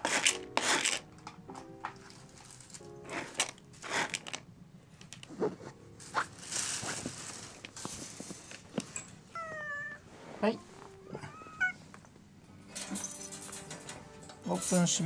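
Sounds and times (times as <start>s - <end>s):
cats crunching in plastic tray: 0.0s - 1.0s, 1.9s - 8.8s
rustling: 0.0s - 15.0s.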